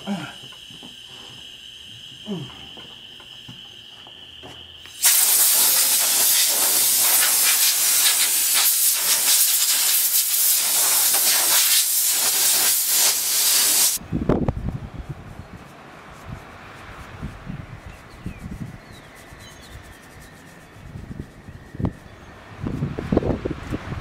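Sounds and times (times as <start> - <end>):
air jet hissing: 4.8 - 14.0.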